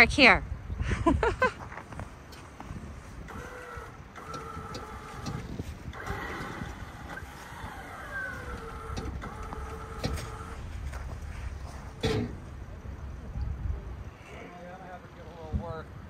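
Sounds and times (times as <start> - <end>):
low engine rumble: 0.1 - 16.0
electric winch whining: 3.0 - 13.2.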